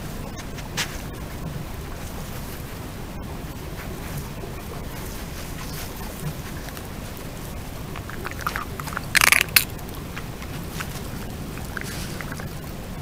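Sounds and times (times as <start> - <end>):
steady hiss: 0.0 - 13.0
badger rustling in grass: 3.6 - 12.8.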